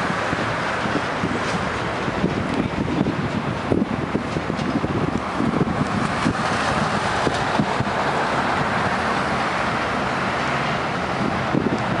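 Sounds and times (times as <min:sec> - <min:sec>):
highway traffic rushing: 0:00.0 - 0:12.0
wind on microphone: 0:00.0 - 0:12.0.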